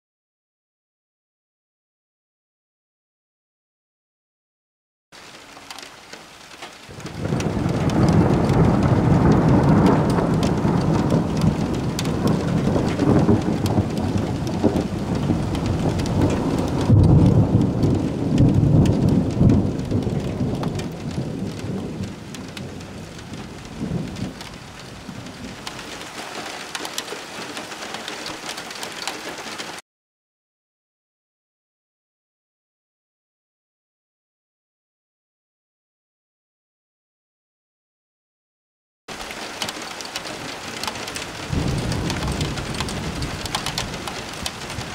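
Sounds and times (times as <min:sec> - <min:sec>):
steady rain: 0:05.2 - 0:29.8, 0:39.1 - 0:44.9
rolling thunder: 0:06.9 - 0:26.6, 0:40.3 - 0:44.9.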